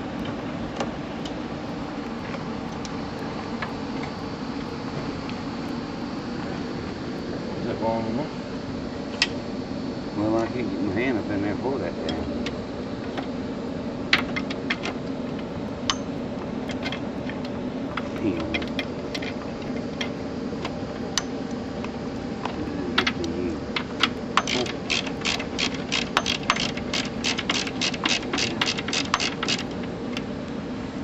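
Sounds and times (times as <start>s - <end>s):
socket ratchet clicking: 23.9s - 29.7s.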